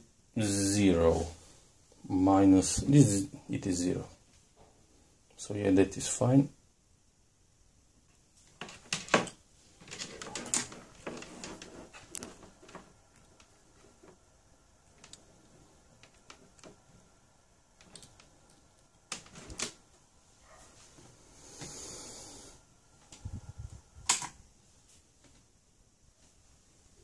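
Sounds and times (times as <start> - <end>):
cables rustling: 8.4 - 17.2, 17.8 - 21.7.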